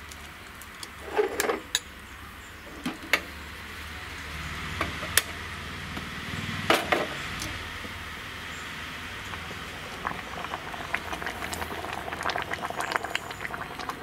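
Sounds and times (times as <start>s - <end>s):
gas flame hissing: 2.6s - 14.0s.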